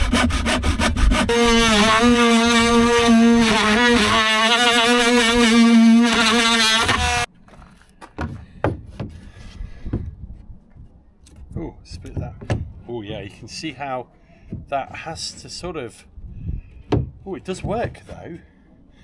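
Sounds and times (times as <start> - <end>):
cordless drill boring into wood: 1.6 - 7.3
wood knocks: 12.0 - 13.2, 16.9 - 18.2.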